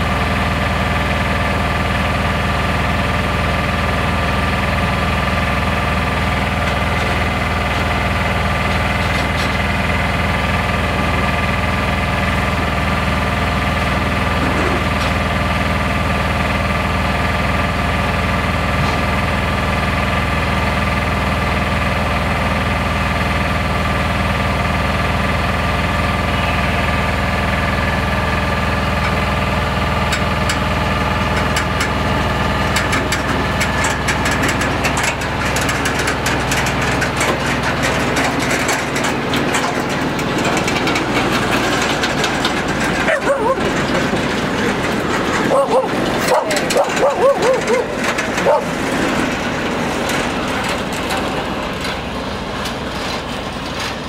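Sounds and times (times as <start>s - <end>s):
diesel locomotive engine idling: 0.0s - 54.0s
wagon wheels clicking and rattling: 29.0s - 52.1s.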